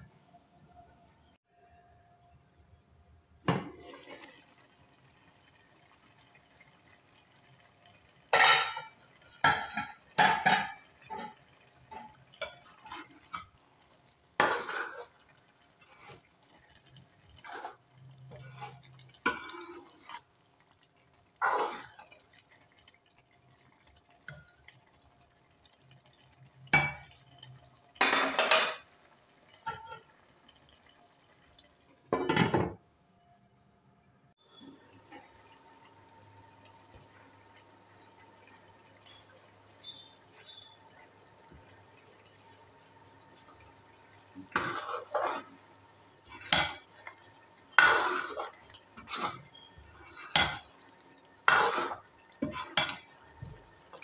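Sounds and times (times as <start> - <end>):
metal spoon scraping a pot: 17.4 - 20.2, 44.5 - 47.0, 47.7 - 50.7, 51.5 - 53.0.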